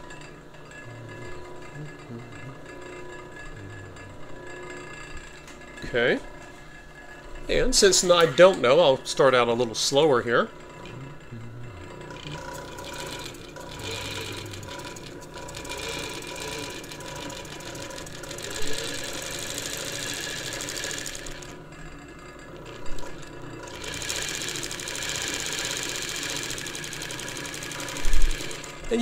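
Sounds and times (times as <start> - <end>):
overlock sewing machine running: 11.8 - 29.0.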